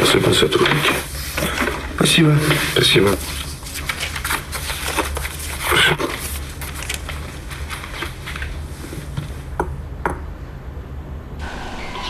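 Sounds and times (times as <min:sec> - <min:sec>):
paper rustling: 0:00.0 - 0:09.4
low hum: 0:10.6 - 0:12.0.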